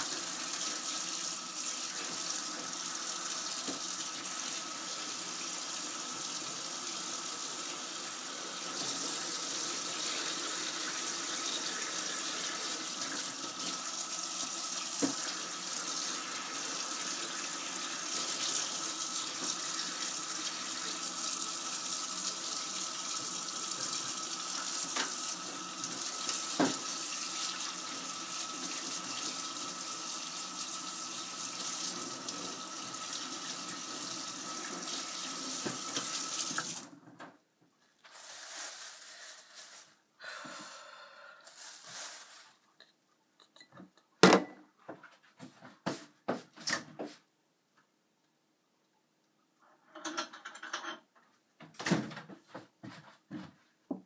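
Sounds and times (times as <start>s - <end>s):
tap water running into sink: 0.0s - 36.9s.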